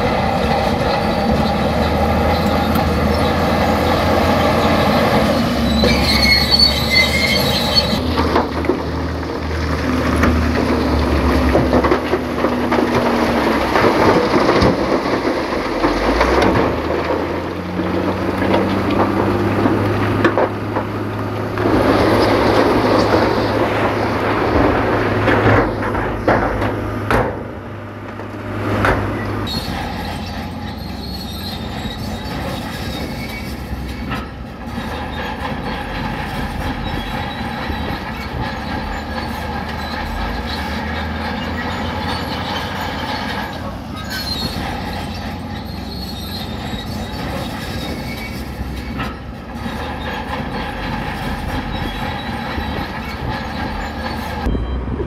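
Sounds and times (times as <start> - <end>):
diesel engines droning: 0.0 - 55.0
high metallic squealing: 1.0 - 8.2, 29.4 - 55.0
clanks and knocks: 7.9 - 54.6.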